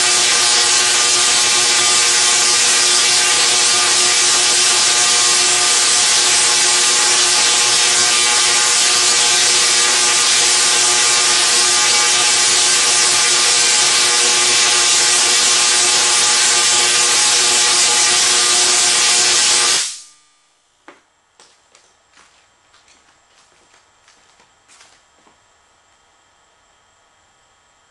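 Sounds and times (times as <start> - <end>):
tesla coil buzzing hiss: 0.0 - 20.2.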